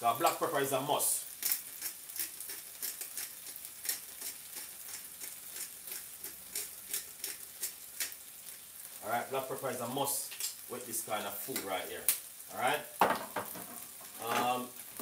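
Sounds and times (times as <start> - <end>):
frying pan sizzling: 0.0 - 15.0.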